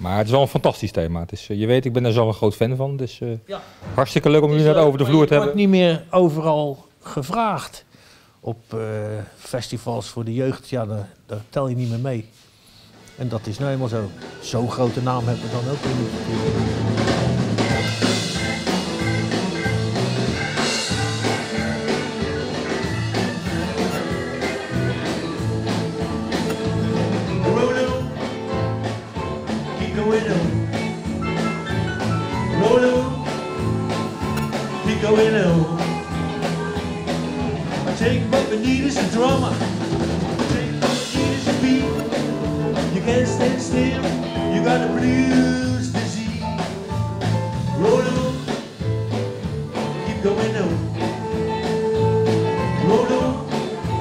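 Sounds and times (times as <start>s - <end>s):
live rock and roll band: 12.4s - 54.0s
steady drum beat: 12.9s - 54.0s
person singing: 17.6s - 28.7s, 29.5s - 30.9s, 32.3s - 33.6s, 34.5s - 36.7s, 37.8s - 39.7s, 40.4s - 46.6s, 47.7s - 48.6s, 49.8s - 54.0s.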